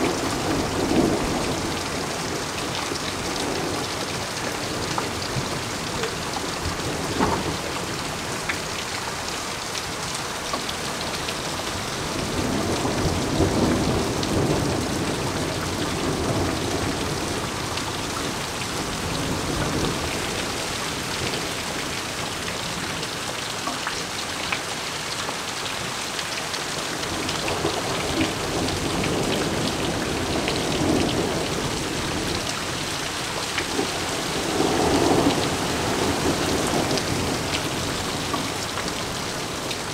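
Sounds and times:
raindrops pattering: 0.0s - 39.9s
heavy rain hissing: 26.7s - 39.9s.

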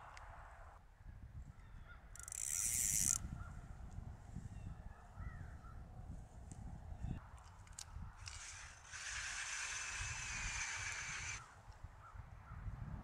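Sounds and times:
wind rumble on microphone: 0.0s - 8.7s, 9.7s - 13.0s.

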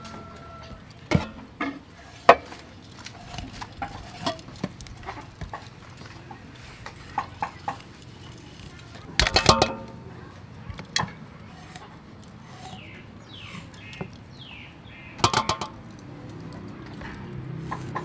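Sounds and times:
metallic clinks: 2.4s - 5.4s, 6.6s - 10.0s, 11.0s - 18.0s
bird chirping: 12.6s - 15.3s.

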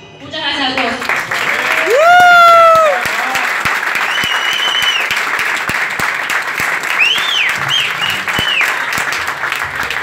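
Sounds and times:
audience clapping and cheering: 0.8s - 10.0s
shrill whistles: 4.0s - 5.2s, 6.9s - 9.2s.

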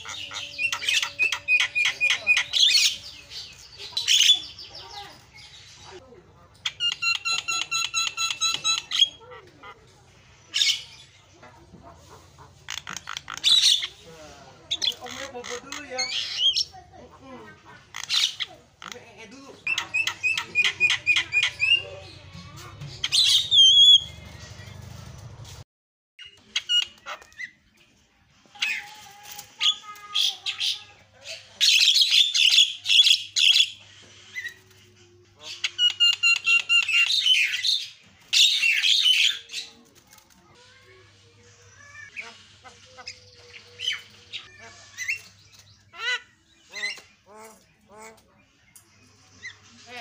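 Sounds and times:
bird harsh squawk: 0.0s - 4.9s, 35.4s - 39.8s, 41.6s - 47.7s
bird singing varied song: 0.0s - 9.2s, 12.6s - 25.3s, 30.4s - 50.0s.

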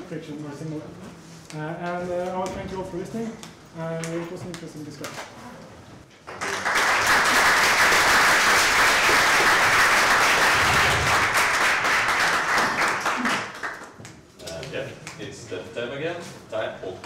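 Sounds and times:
audience applauding: 6.2s - 14.0s.

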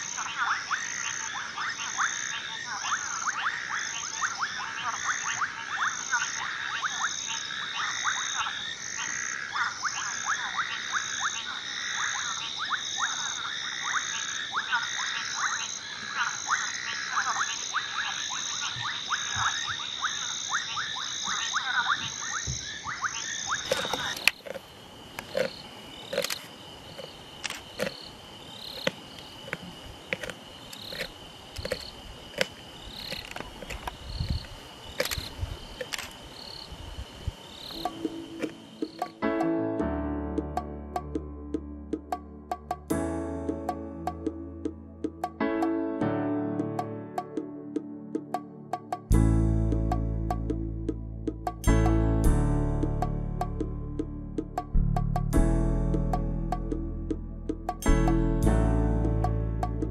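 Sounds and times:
frogs calling: 0.0s - 39.2s
insects trilling: 0.0s - 39.3s
sharp clicks: 25.2s - 28.0s, 28.7s - 36.2s.

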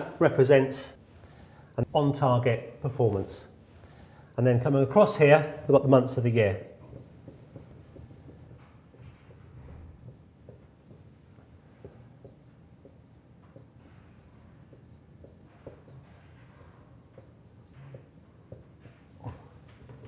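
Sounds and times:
marker pen writing on whiteboard: 5.0s - 20.0s.

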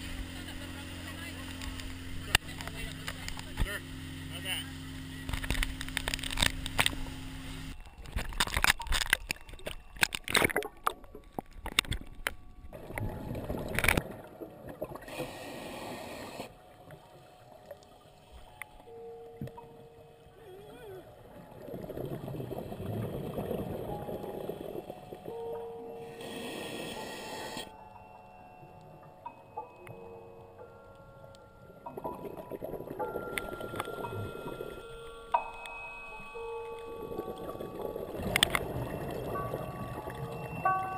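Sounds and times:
boat engine running: 0.0s - 7.8s
water noise: 0.0s - 40.9s
diver regulator bubbles gurgling: 12.8s - 17.0s, 21.3s - 25.6s, 31.9s - 34.9s, 36.9s - 40.9s.

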